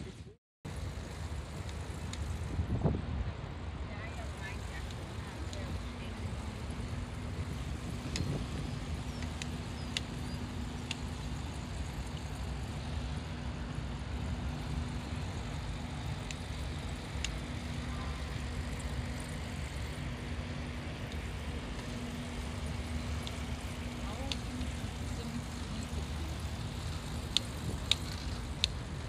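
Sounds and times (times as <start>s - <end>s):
light ticks: 1.6s - 2.3s, 9.2s - 11.1s, 16.2s - 16.6s, 17.2s - 17.4s, 26.8s - 28.8s.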